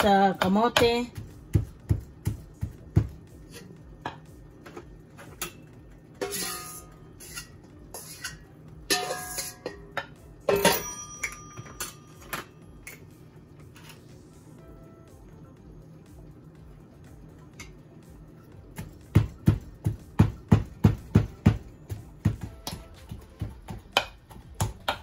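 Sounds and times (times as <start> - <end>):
pestle pounding in wooden mortar: 0.0 - 3.2, 18.8 - 25.0
metal bowl clanking: 5.4 - 13.0
spoon scraping metal bowl: 6.2 - 8.4.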